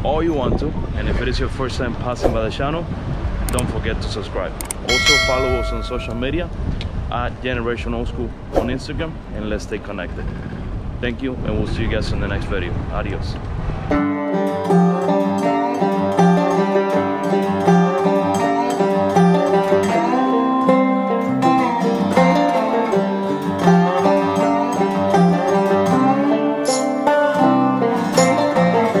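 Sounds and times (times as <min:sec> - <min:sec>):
plucked string music with beat: 0:13.9 - 0:29.0.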